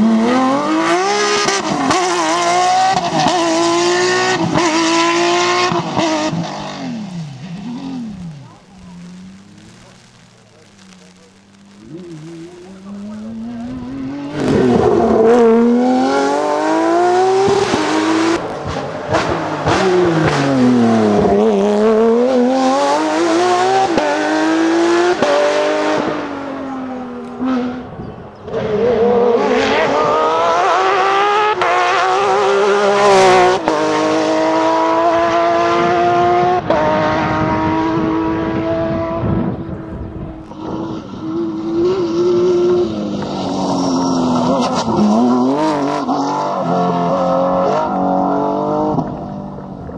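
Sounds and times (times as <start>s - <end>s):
rally car engines revving: 0.0s - 49.9s.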